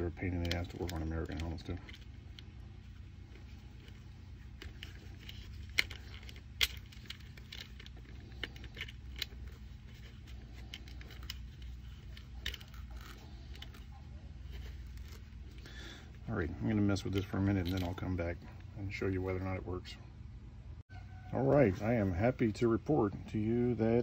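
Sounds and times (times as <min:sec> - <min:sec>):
metal clips clicking and scraping: 0:00.0 - 0:15.9, 0:16.8 - 0:18.3
steady low hum: 0:00.0 - 0:24.0.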